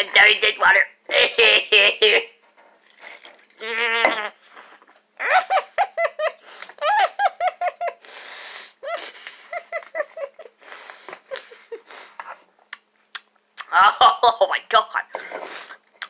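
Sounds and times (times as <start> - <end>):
boy humming with closed mouth: 3.6 - 4.4
noisy breath out: 8.0 - 9.5, 10.6 - 12.3.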